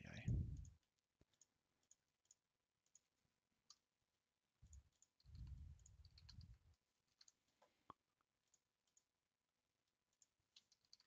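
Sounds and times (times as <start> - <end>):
low muffled rumble: 0.2 - 0.7
computer mouse clicks: 0.4 - 3.9, 4.6 - 9.1, 10.1 - 11.0.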